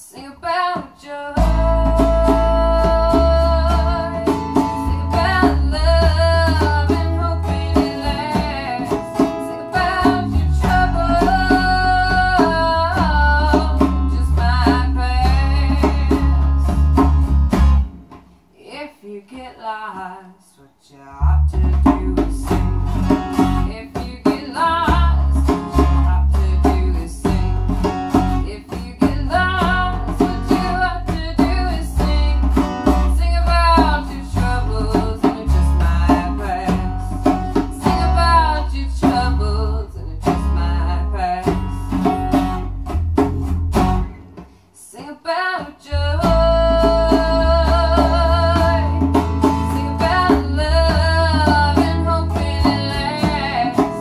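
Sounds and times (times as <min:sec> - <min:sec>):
woman singing: 0:00.0 - 0:17.0, 0:18.6 - 0:22.8, 0:23.4 - 0:42.5, 0:44.8 - 0:54.0
strummed acoustic guitar: 0:01.0 - 0:18.4, 0:21.6 - 0:54.0
bass guitar: 0:01.4 - 0:18.3, 0:21.1 - 0:44.6, 0:45.9 - 0:54.0
hand drum: 0:01.4 - 0:18.3, 0:21.6 - 0:44.6, 0:46.2 - 0:54.0.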